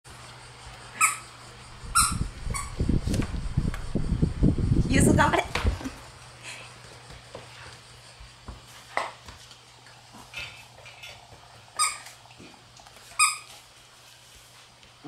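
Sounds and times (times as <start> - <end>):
puppies squeaking: 1.9 - 2.8, 11.8 - 12.1, 13.2 - 13.6.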